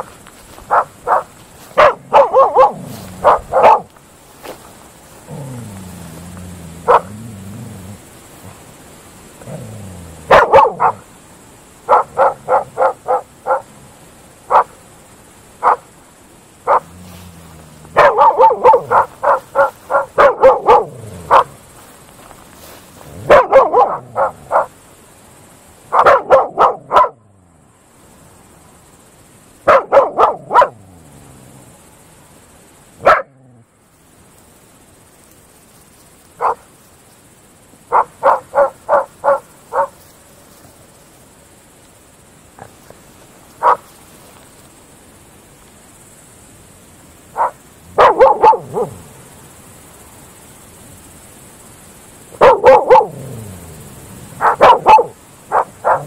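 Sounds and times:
dogs barking: 0:00.7 - 0:03.9, 0:06.8 - 0:07.3, 0:09.4 - 0:11.1, 0:11.9 - 0:13.8, 0:14.5 - 0:14.8, 0:15.6 - 0:15.9, 0:16.6 - 0:17.0, 0:17.9 - 0:21.6, 0:23.1 - 0:24.8, 0:25.9 - 0:27.2, 0:29.6 - 0:30.8, 0:33.0 - 0:33.4, 0:36.4 - 0:36.7, 0:37.9 - 0:40.0, 0:43.6 - 0:43.9, 0:47.3 - 0:49.0, 0:52.4 - 0:53.6, 0:54.3 - 0:56.0.

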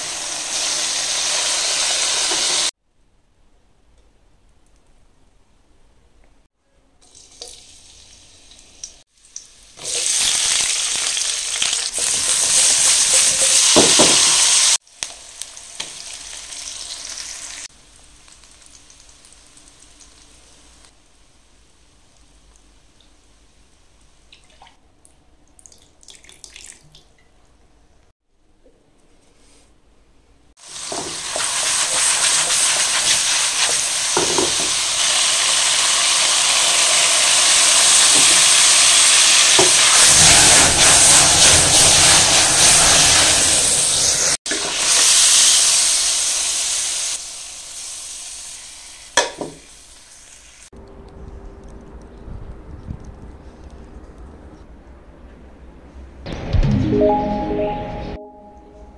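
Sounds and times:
food sizzling in a wok: 0:00.0 - 0:02.8, 0:07.1 - 0:23.7, 0:30.6 - 0:50.7.

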